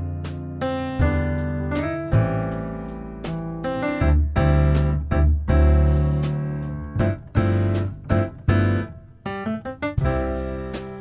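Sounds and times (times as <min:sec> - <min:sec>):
piano chords: 0:00.0 - 0:11.0.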